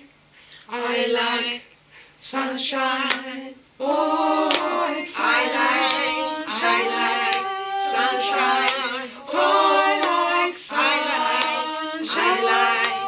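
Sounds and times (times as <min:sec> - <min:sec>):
group of people singing: 0:00.0 - 0:13.0.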